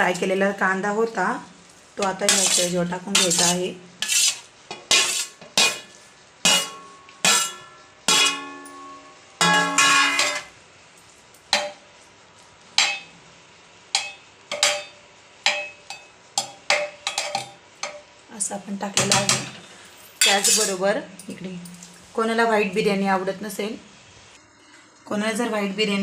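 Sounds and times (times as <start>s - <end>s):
metal spoon clinking on metal: 20.2s - 20.8s.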